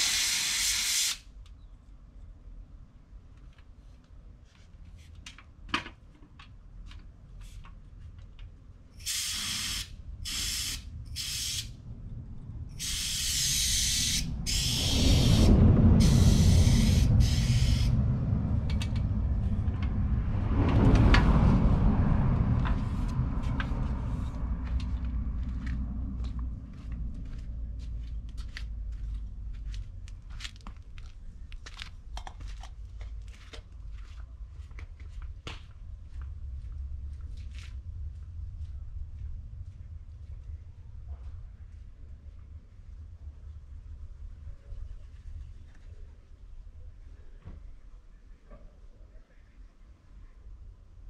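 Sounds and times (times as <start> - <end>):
aerosol can spraying: 0.0 - 1.2, 9.0 - 11.7, 12.8 - 18.0
low rumbling noise: 9.8 - 51.0.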